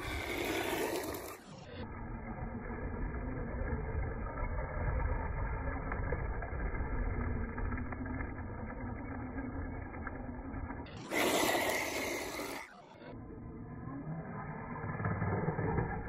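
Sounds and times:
toy car rumbling over gravel: 0:00.0 - 0:01.7, 0:02.4 - 0:12.8.

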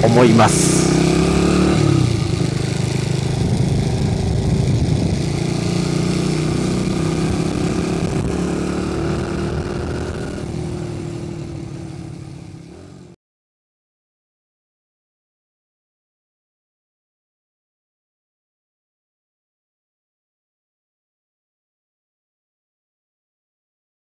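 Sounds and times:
small minibike engine running: 0:02.1 - 0:06.8.

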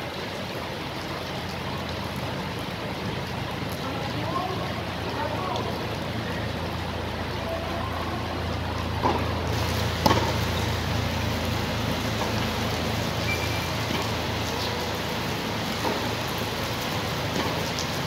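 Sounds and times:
tennis ball hit by racquet: 0:09.0 - 0:09.4, 0:10.0 - 0:10.6, 0:13.8 - 0:14.2, 0:15.8 - 0:16.1, 0:17.3 - 0:17.7.

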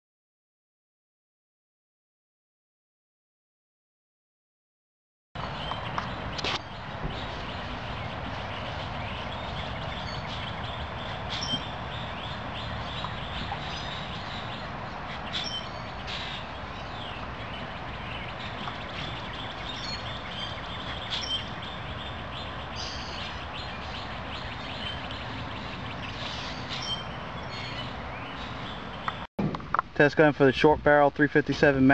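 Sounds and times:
bird chirps: 0:05.4 - 0:29.3
steady rush of noise: 0:05.4 - 0:31.9.

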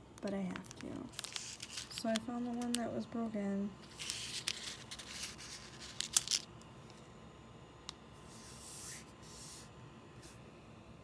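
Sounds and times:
plastic bag crinkling: 0:00.3 - 0:02.8
hand brushing across table: 0:08.2 - 0:10.4.

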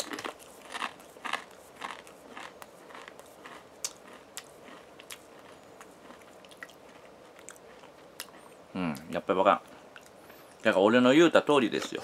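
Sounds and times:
person chewing crisps: 0:00.0 - 0:09.2.

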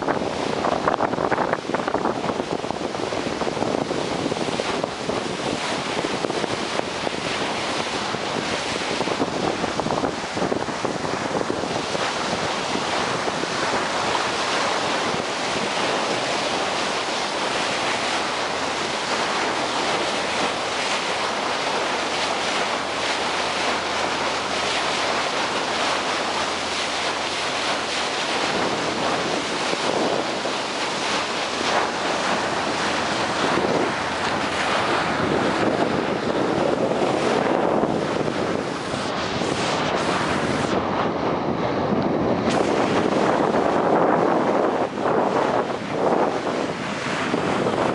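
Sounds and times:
water splashing along boat hull: 0:00.0 - 0:47.9
wind buffeting microphone: 0:00.0 - 0:47.9.

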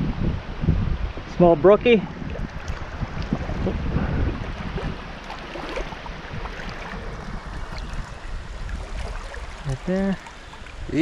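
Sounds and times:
wind buffeting microphone: 0:00.0 - 0:11.0
river water running: 0:00.5 - 0:11.0
small splashes or knocks: 0:02.2 - 0:03.8, 0:04.5 - 0:08.1, 0:08.7 - 0:10.8.

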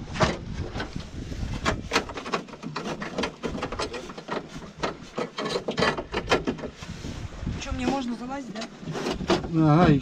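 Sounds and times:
objects knocking and clicking: 0:01.6 - 0:06.8.

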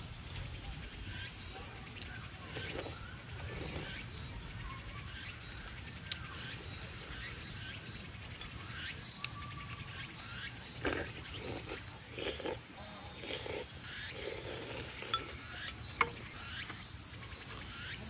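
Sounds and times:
crickets and insects chirping: 0:00.0 - 0:18.0
person eating soup: 0:02.4 - 0:04.1, 0:10.6 - 0:16.4.

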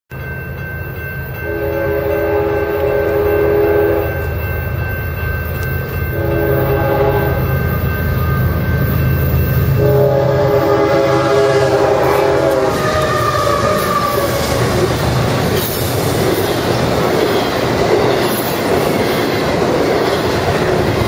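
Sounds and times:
distant locomotive air horn: 0:01.4 - 0:04.2, 0:06.2 - 0:07.6, 0:09.7 - 0:14.8.

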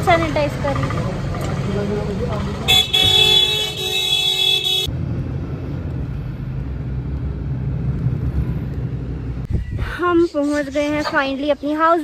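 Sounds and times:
car driving rumble: 0:00.0 - 0:11.1
vehicle horn blaring: 0:02.7 - 0:04.9.

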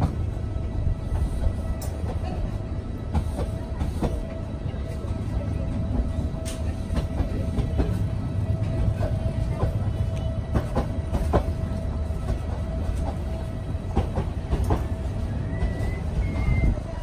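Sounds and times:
train rumble: 0:00.0 - 0:17.0.

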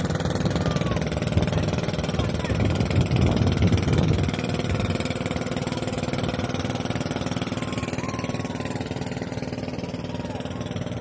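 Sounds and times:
boat engine running: 0:00.0 - 0:11.0.

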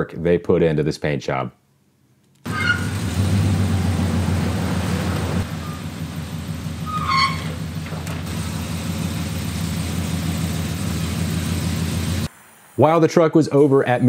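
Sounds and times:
truck engine idling: 0:02.5 - 0:12.3.

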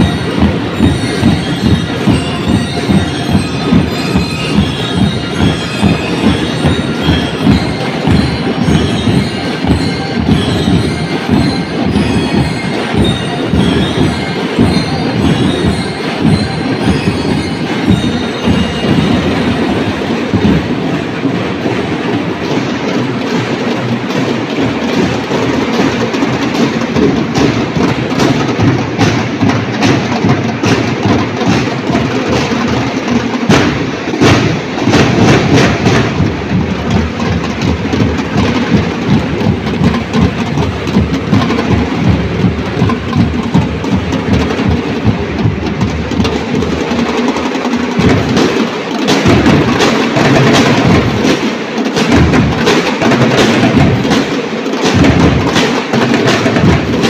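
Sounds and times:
snare drums beating: 0:00.0 - 0:57.0
bass drums beating: 0:33.4 - 0:47.0.

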